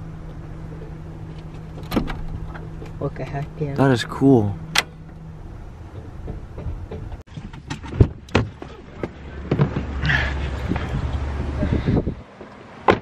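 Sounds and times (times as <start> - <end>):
steady low hum: 0.0 - 7.2
van door unlatching and opening: 1.4 - 3.0.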